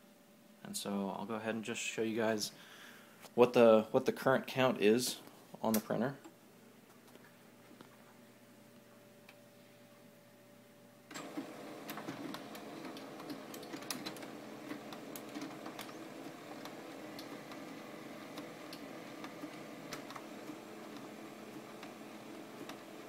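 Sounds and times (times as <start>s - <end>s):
laser printer mechanism running: 11.1s - 23.0s
printer clicks and ticks: 11.1s - 23.0s.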